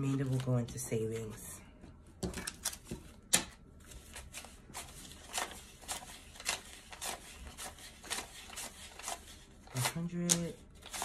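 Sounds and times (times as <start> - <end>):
bills being counted by hand: 2.4 - 11.0.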